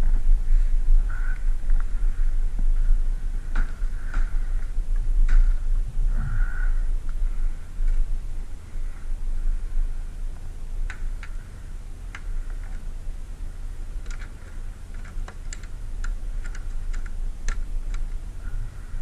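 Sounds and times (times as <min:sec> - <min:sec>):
wind rumble on microphone: 0:00.0 - 0:19.0.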